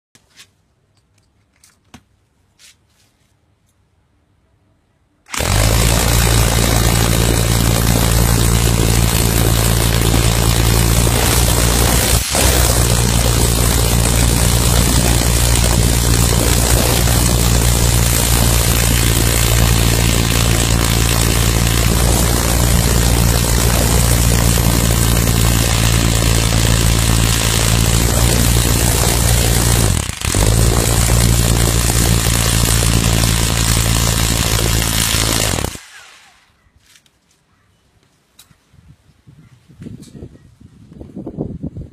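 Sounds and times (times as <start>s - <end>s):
machine drone with hiss: 5.3s - 36.5s.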